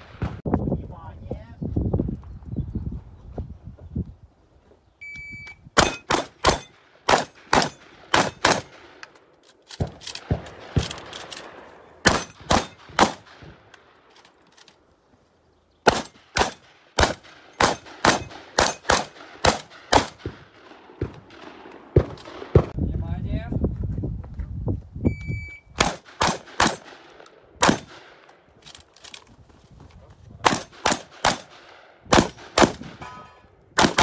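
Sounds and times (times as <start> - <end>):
shot timer beep: 5.0 - 5.6, 25.1 - 25.7
shotgun firing: 5.8 - 9.0, 9.8 - 13.6, 15.8 - 22.8, 25.8 - 28.3, 30.4 - 33.2, 33.8 - 34.0.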